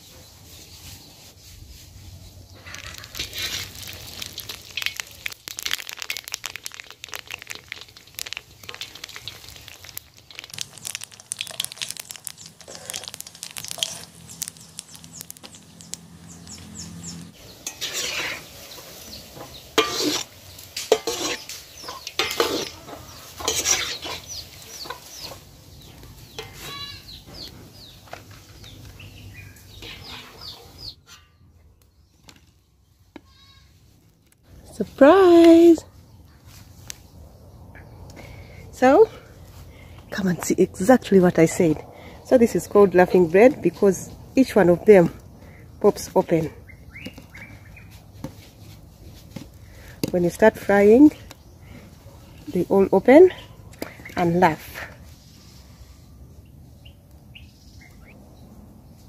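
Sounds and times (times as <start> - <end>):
dough deep-frying in oil: 2.2 - 30.2
metal spoon scraping a pan: 8.7 - 15.3, 17.4 - 25.0, 26.3 - 27.0.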